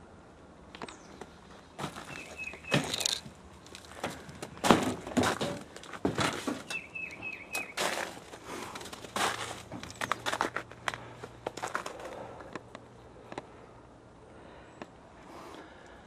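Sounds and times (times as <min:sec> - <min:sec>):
bird chirping: 0:00.8 - 0:03.2, 0:06.6 - 0:08.0
footsteps crunching through snow: 0:04.6 - 0:12.2.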